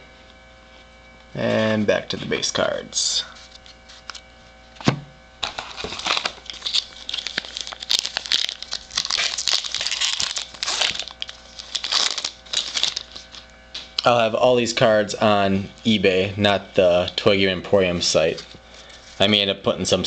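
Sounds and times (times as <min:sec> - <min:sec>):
foil wrapper crinkling and tearing: 0:05.4 - 0:14.1.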